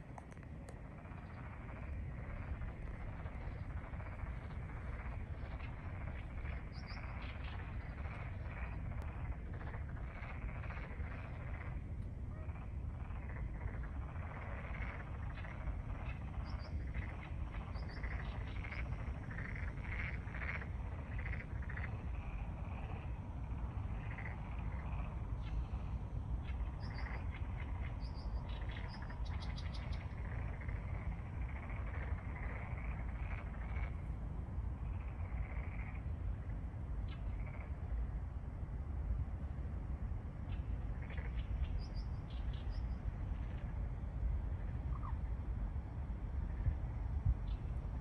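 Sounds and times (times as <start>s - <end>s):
frogs croaking: 0.0s - 48.0s
steady low rumble: 0.0s - 48.0s.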